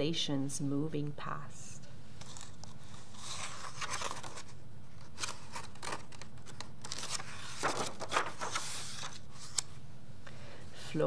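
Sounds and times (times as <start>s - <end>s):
book page turning: 2.2s - 9.8s.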